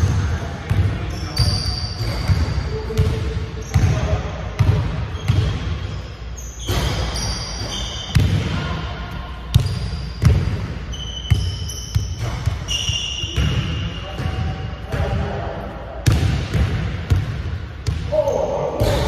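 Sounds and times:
basketballs bouncing on wooden floor: 0:00.0 - 0:05.8, 0:09.2 - 0:15.3, 0:16.0 - 0:19.0
sneakers squeaking on court: 0:00.0 - 0:08.5, 0:09.1 - 0:15.1.

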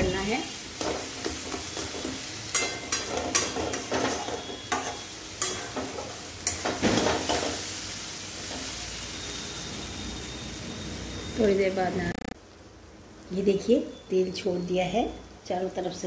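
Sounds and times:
masala sizzling: 0:00.0 - 0:16.0
metal spatula scraping pan: 0:00.8 - 0:07.6.

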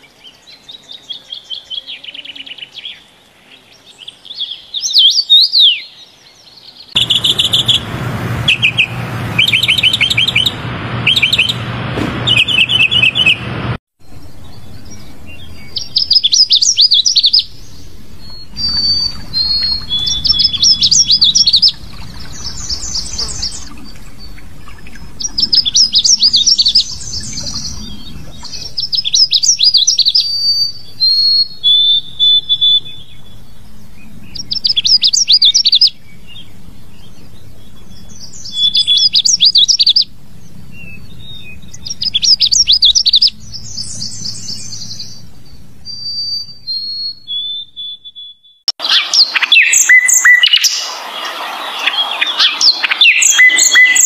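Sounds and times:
bird whistled notes: 0:07.0 - 0:07.8, 0:08.5 - 0:11.6, 0:18.2 - 0:21.8, 0:45.8 - 0:54.0
bird warbling: 0:07.0 - 0:11.6, 0:15.4 - 0:33.1, 0:45.8 - 0:54.0.

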